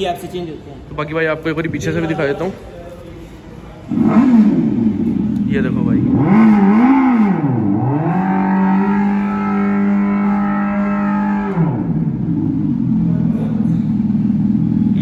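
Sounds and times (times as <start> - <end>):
artificial motorcycle engine sound: 3.8 - 15.0.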